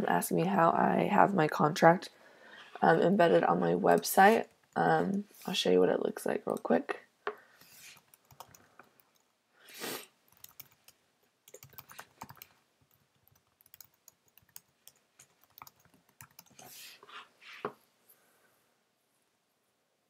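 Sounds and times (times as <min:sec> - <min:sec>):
keyboard typing clicks: 0:08.0 - 0:09.3, 0:10.3 - 0:16.6.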